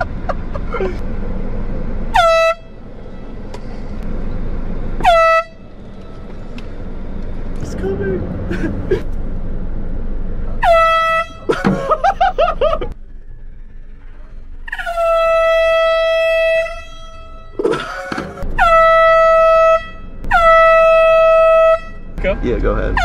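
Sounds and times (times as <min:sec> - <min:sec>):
air horn blasts: 0:02.1 - 0:03.8, 0:05.0 - 0:06.3, 0:10.6 - 0:11.9, 0:14.6 - 0:22.3.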